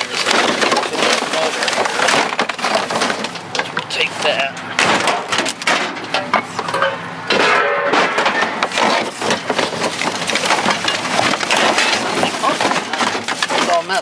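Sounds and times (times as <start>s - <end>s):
plastic bags and papers crinkling: 0.0s - 5.6s, 8.6s - 14.0s
items clattering in trash can: 0.0s - 14.0s.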